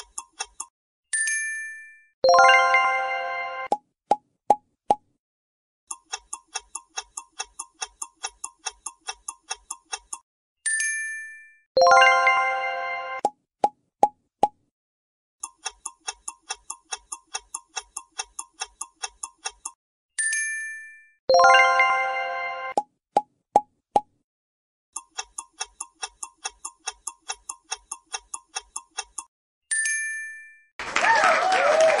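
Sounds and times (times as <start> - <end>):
clock ticking fast: 0.0 - 0.7, 5.9 - 10.2, 15.4 - 19.8, 25.0 - 29.3
ringing ding: 10.7 - 11.6, 29.7 - 30.7
bright multi-tone chime: 10.7 - 13.2
applause: 30.8 - 32.0.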